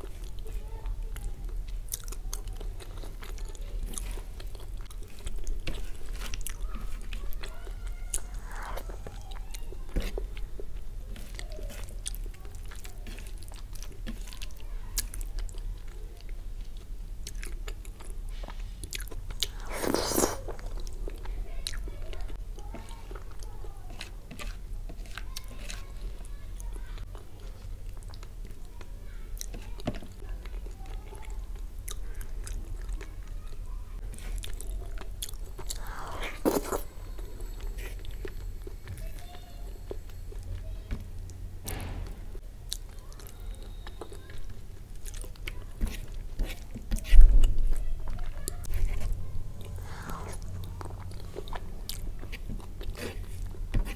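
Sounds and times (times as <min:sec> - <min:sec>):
fingers squishing food: 0:00.0 - 0:41.4
mouth chewing food: 0:00.0 - 0:41.4, 0:42.7 - 0:53.9.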